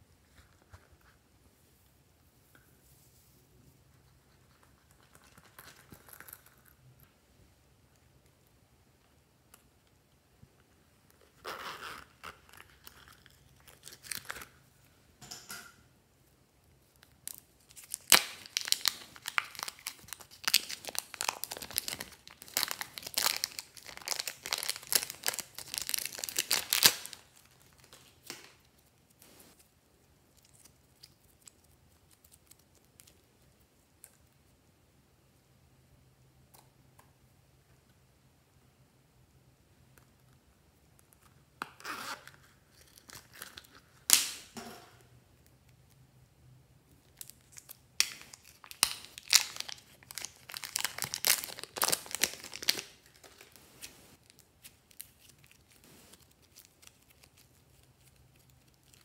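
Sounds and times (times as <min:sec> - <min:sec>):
plastic packet crinkling and tearing: 0:12.0 - 0:14.6, 0:17.0 - 0:29.6, 0:42.2 - 0:44.4, 0:47.0 - 0:59.0.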